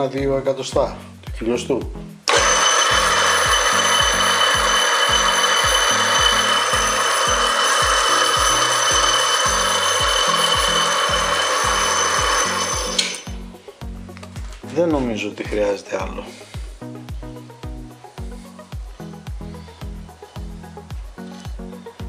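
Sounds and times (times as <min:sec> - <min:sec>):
lathe motor whine: 0:02.3 - 0:13.5.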